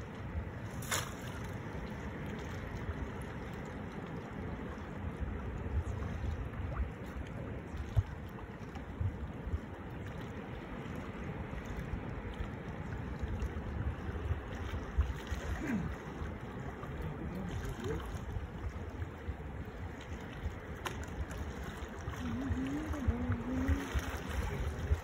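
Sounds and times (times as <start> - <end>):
water noise: 0.0 - 25.0
wind: 0.0 - 25.0
wind gusting on microphone: 13.5 - 25.0.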